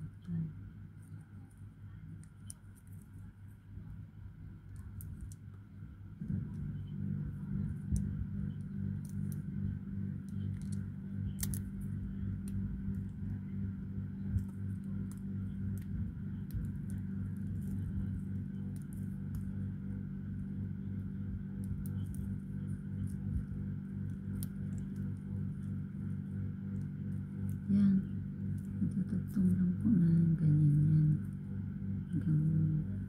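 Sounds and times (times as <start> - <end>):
steady low hum: 0.0 - 33.0
foil strips crinkling and clicking: 7.6 - 29.7.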